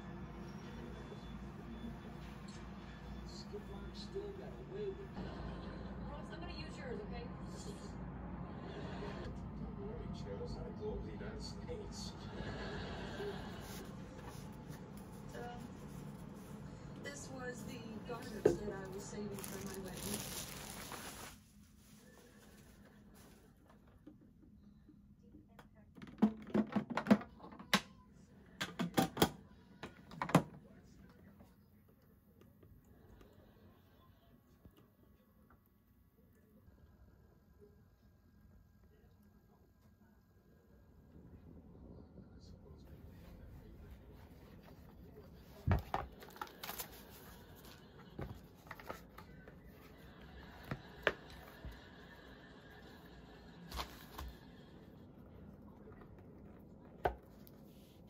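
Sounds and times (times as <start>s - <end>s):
foam wrapping rustling: 18.9s - 23.4s.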